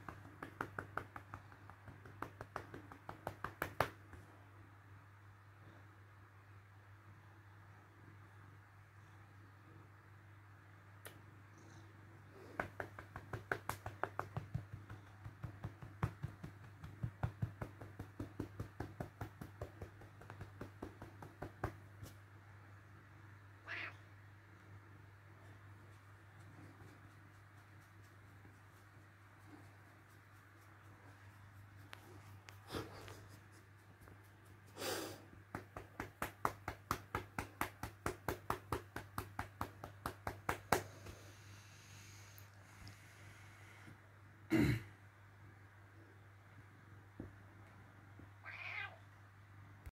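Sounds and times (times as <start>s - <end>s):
hand patting cat's fur: 0.0s - 4.4s, 12.2s - 22.4s, 25.3s - 42.3s.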